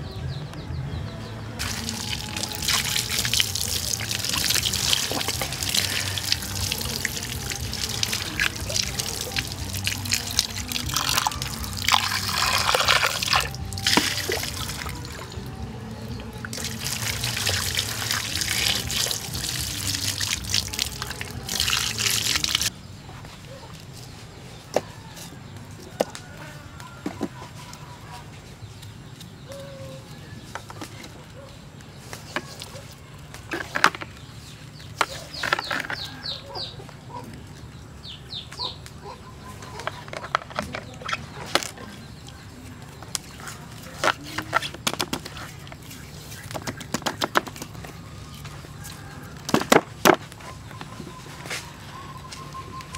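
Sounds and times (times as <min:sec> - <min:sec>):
water splashing over fish: 0:01.6 - 0:15.5, 0:16.5 - 0:22.7.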